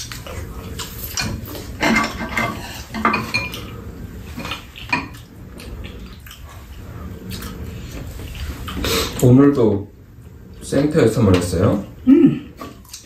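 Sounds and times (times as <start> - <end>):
utensils clinking against bowls: 1.0 - 3.7.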